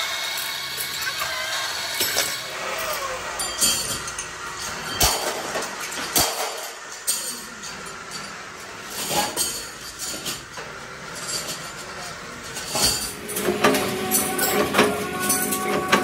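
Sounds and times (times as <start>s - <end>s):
metal plates clinking: 2.0s - 16.0s
music with tambourine percussion: 12.8s - 16.0s.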